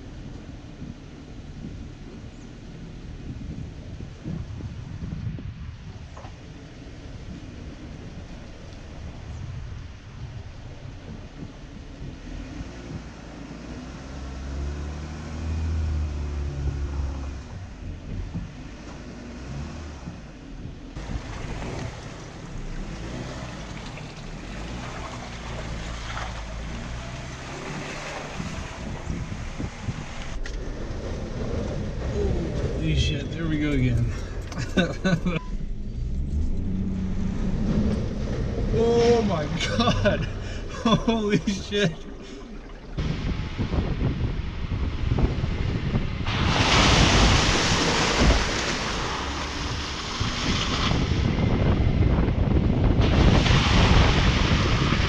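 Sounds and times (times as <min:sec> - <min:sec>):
car engine running: 0:00.0 - 0:55.0
low rumble: 0:00.0 - 0:55.0
wind rushing on microphone: 0:00.0 - 0:55.0
tyre splashing through mud and water: 0:18.2 - 0:35.5, 0:36.2 - 0:55.0.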